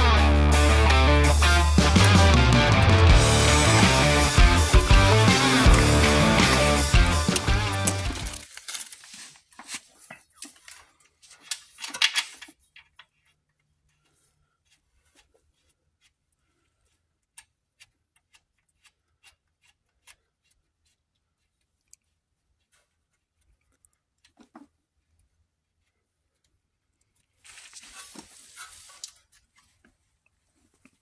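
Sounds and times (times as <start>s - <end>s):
rock music: 0.0s - 8.4s.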